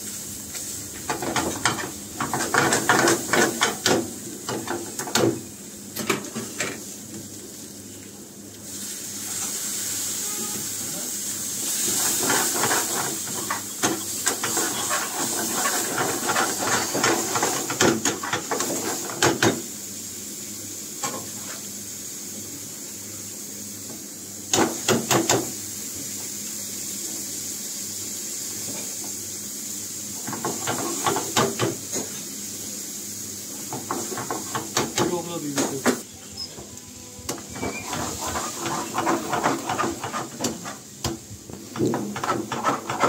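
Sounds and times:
food sizzling in a frying pan: 0.0s - 43.0s
metal ladle scraping a pan: 14.4s - 17.0s.

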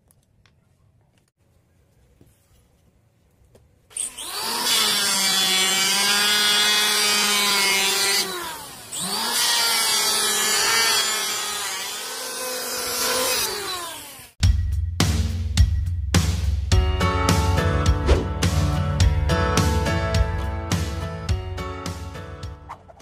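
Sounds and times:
electric planer motor whining: 3.9s - 14.3s
blade shaving wooden board: 4.0s - 14.4s.

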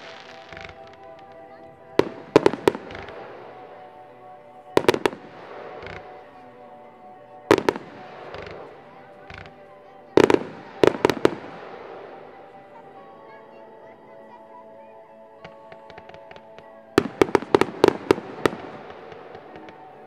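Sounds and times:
fireworks bursting with sharp bangs: 0.0s - 3.8s, 4.8s - 6.4s, 7.5s - 12.5s, 15.4s - 20.0s
music playing: 0.0s - 20.0s.

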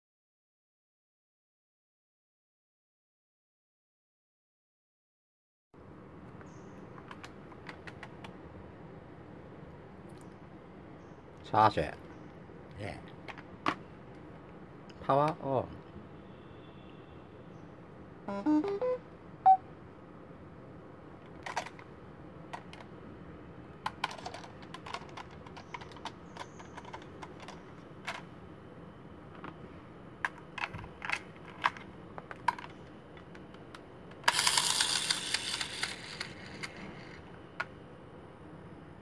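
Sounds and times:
plastic toy clicks and knocks: 21.3s - 21.8s, 23.8s - 28.2s, 30.2s - 33.4s, 34.1s - 37.7s.

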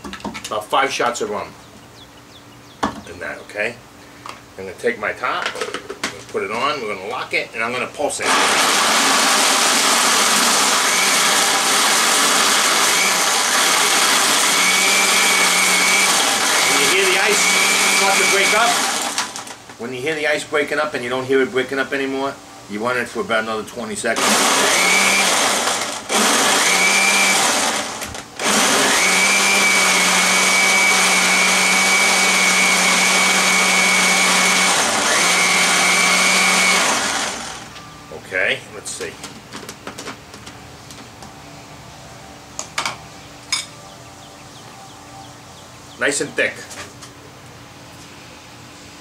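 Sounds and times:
blender churning ice: 8.2s - 19.6s, 24.2s - 37.7s.

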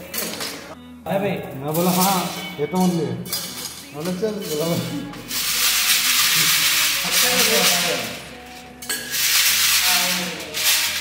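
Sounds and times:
stones rattling in metal sieve: 3.4s - 11.0s.

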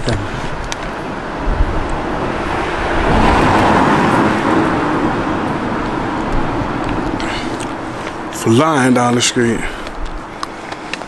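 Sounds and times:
car driving fast past: 1.4s - 8.3s.

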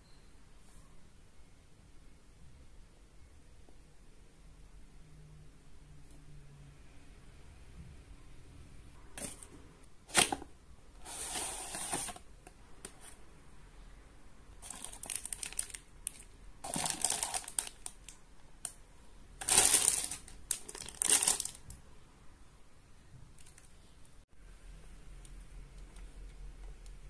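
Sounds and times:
plastic bag crinkling: 14.6s - 18.7s, 19.4s - 21.7s.

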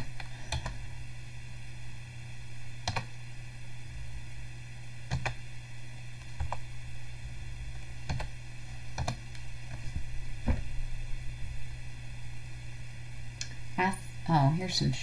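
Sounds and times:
steady low hum: 0.0s - 15.0s
keyboard keystrokes: 2.9s - 3.1s, 5.1s - 5.4s, 6.4s - 6.6s, 8.0s - 8.3s, 9.0s - 9.2s.

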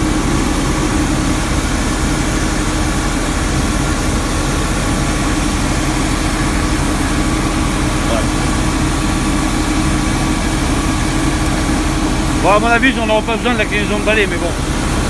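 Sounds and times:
street sweeper engine droning: 0.0s - 15.0s.

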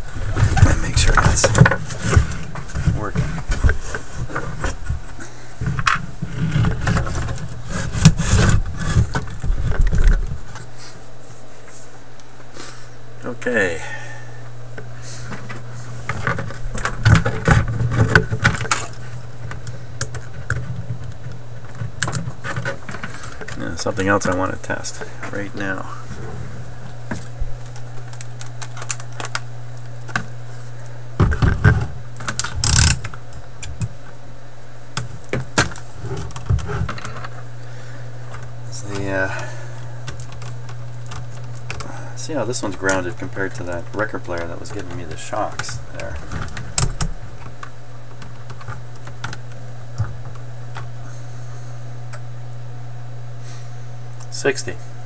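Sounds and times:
steady low hum: 0.0s - 55.0s
scratchy rustle: 6.2s - 11.9s.

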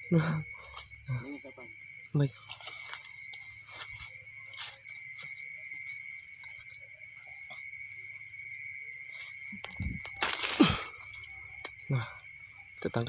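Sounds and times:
crickets trilling: 0.0s - 13.0s
faint ticks and rustles: 2.2s - 8.3s
leaves pushed aside by hand: 9.8s - 10.9s.

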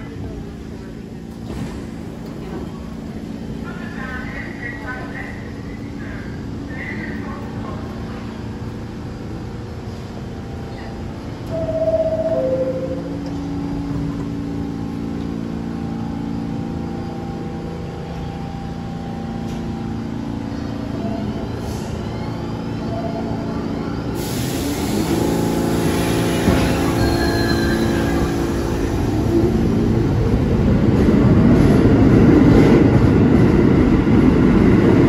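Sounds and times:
subway train equipment hum: 0.0s - 35.0s
two-note door chime: 11.6s - 13.2s.

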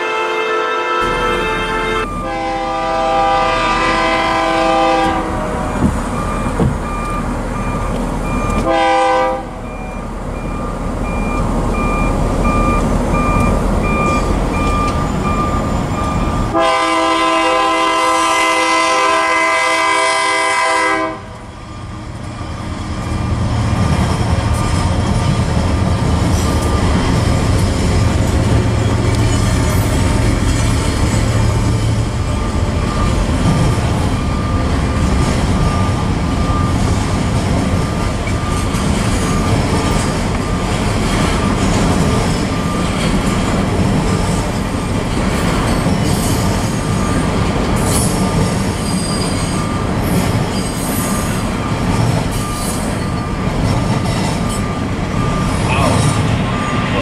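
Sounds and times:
locomotive air horn blasts: 0.0s - 5.8s, 8.6s - 9.7s, 16.5s - 21.4s
locomotive engine rumble: 1.0s - 57.0s.

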